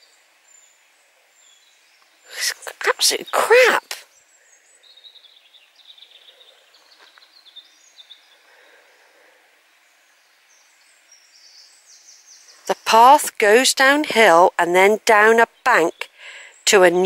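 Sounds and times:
small birds chirping: 0.0s - 17.0s
soft steady hiss: 0.0s - 17.0s.

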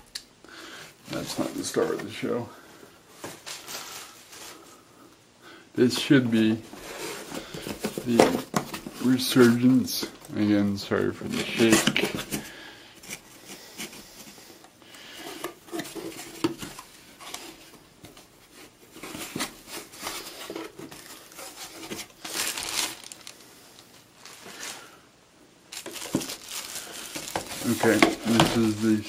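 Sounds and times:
plastic bag crinkling: 21.0s - 25.0s, 25.7s - 29.0s
cardboard box being opened: 25.7s - 29.0s.

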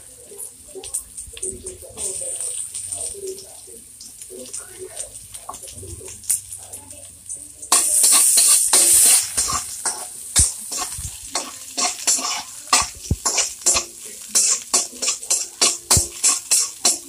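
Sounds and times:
onion sizzling in hot oil: 0.0s - 17.0s
metal ladle scraping a wok: 7.7s - 17.0s.

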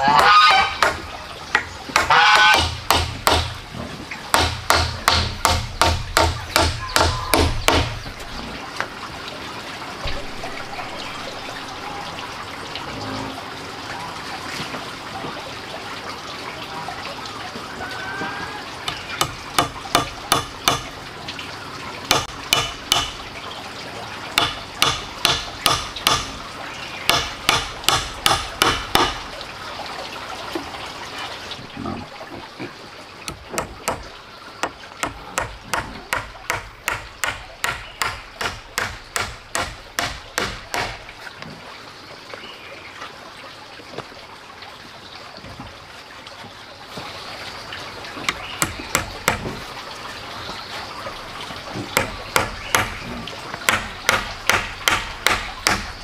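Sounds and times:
running water: 0.0s - 56.0s
hammer driving nails into wood: 22.1s - 23.2s, 33.3s - 41.0s.

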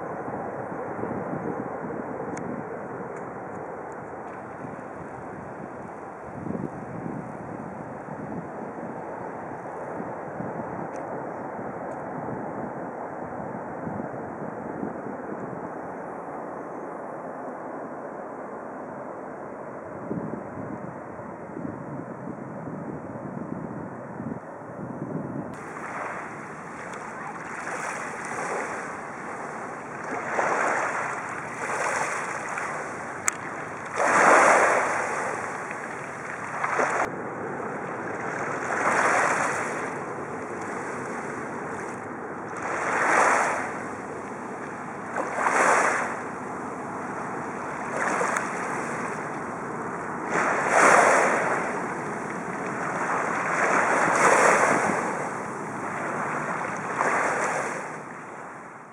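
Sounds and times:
small waves washing on shore: 25.6s - 58.9s.

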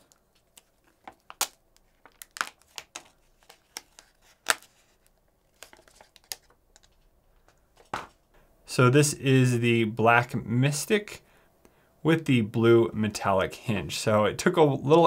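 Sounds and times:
plastic film peeling and crinkling: 0.0s - 7.0s.

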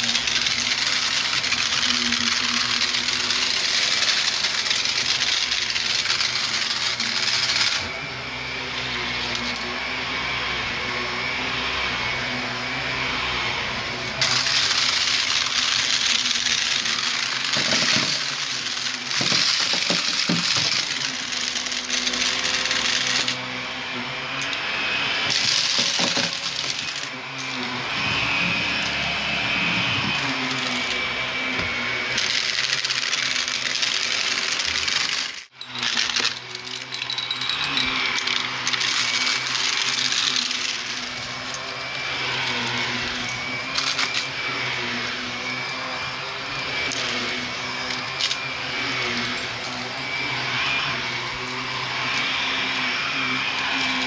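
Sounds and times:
debris rattling in vacuum: 0.0s - 8.0s, 14.2s - 23.4s, 25.3s - 28.9s, 32.1s - 52.2s
vacuum cleaner running: 0.0s - 54.0s.

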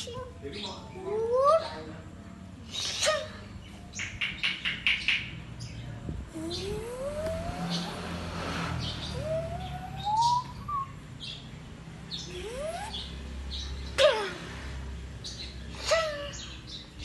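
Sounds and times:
birds chirping: 0.0s - 17.0s
rising whistled bird notes: 8.8s - 11.0s.

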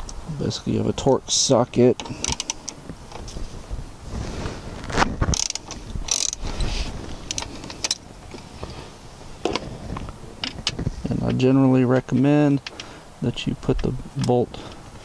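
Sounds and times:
socket ratchet clicking: 2.0s - 2.8s, 5.3s - 6.4s.

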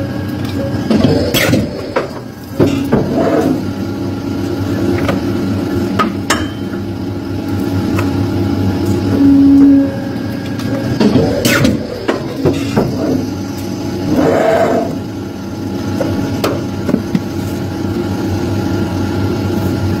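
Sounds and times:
paper cutter humming: 8.9s - 18.2s.

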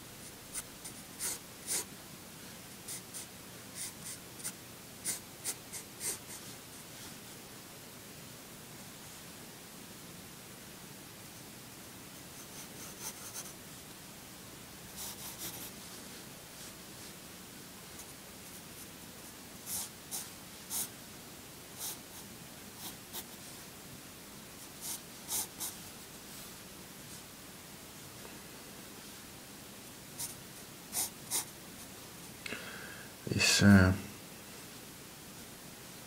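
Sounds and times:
faint steady hiss: 0.0s - 36.0s
pencil scratching on paper: 0.5s - 1.9s, 2.9s - 6.4s, 12.4s - 13.6s, 15.0s - 15.8s, 19.7s - 20.9s, 24.8s - 25.8s, 31.0s - 31.5s.

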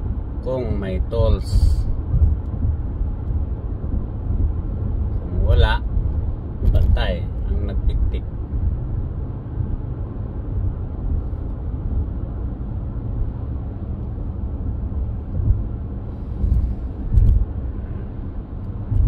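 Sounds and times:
car cabin road rumble: 0.0s - 19.0s
low thumps: 1.8s - 5.2s, 14.3s - 19.0s.

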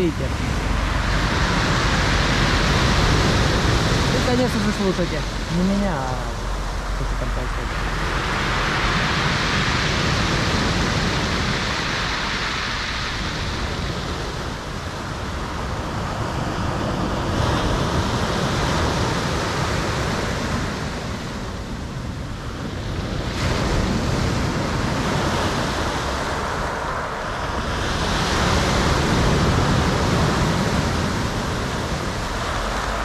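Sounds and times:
surf washing over pebble beach: 0.0s - 33.0s.

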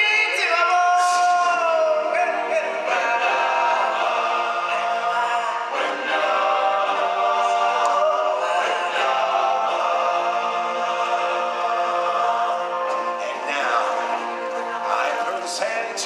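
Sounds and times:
backing music: 0.0s - 16.0s
chorus singing sustained chords: 1.3s - 16.0s.

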